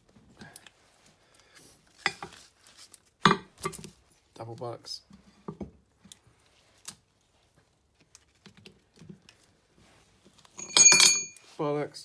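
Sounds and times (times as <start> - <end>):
ringing metallic clank: 10.6 - 11.4.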